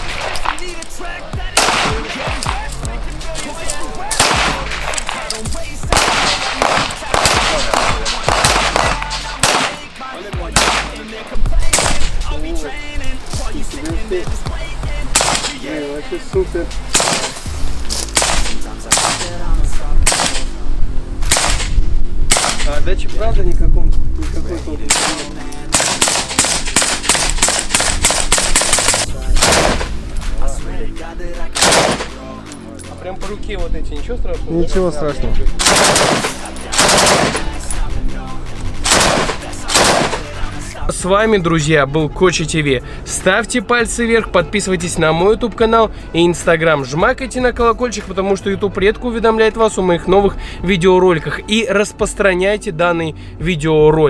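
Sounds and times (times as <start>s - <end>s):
background music: 0.0s - 54.0s
pistol shots: 1.6s - 2.7s, 4.1s - 5.3s, 5.9s - 9.9s, 10.5s - 11.1s, 11.7s - 12.2s, 15.1s - 15.6s, 16.9s - 17.4s, 18.1s - 19.4s, 20.0s - 20.5s, 21.2s - 22.8s, 24.9s - 30.0s, 31.6s - 32.2s, 35.6s - 37.6s, 38.8s - 40.4s
machine gun bursts: 25.8s - 29.9s, 35.6s - 37.5s, 38.9s - 40.3s.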